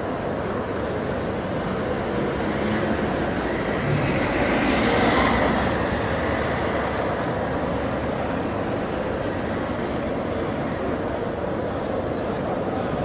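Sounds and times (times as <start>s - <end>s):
large crowd murmuring: 0.0s - 13.0s
street noise: 0.0s - 13.0s.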